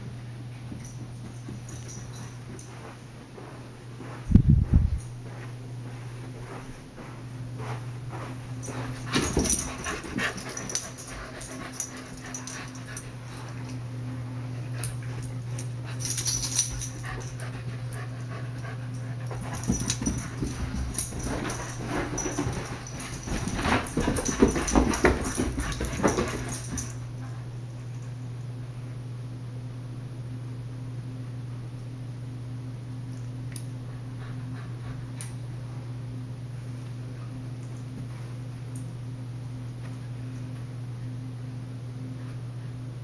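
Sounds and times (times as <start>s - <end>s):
steady low hum: 0.0s - 43.0s
scuffling and sharp knocks: 19.3s - 26.8s.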